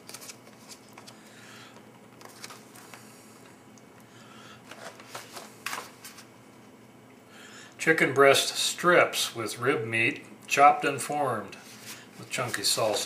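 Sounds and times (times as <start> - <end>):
food pouch crinkling: 2.2 - 2.9.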